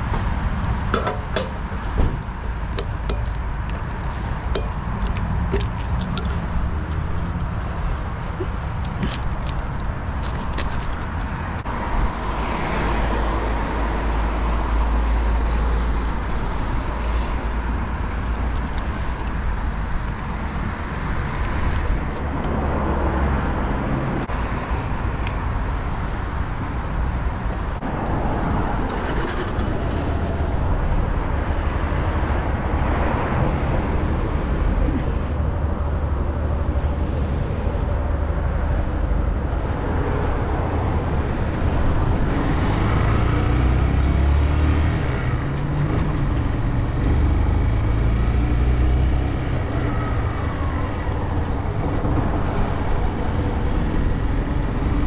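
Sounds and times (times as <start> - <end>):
road traffic passing: 0.0 - 55.0.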